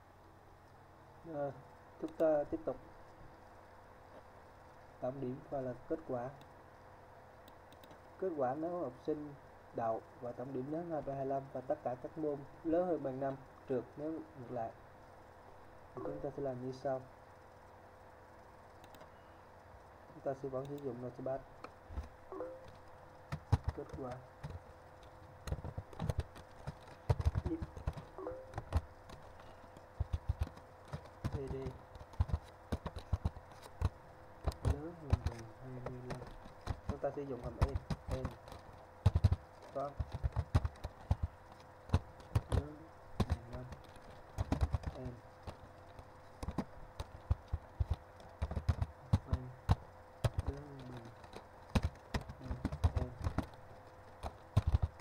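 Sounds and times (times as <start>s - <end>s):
faint steady hum: 0.0s - 55.0s
keyboard key clicks: 25.4s - 53.6s.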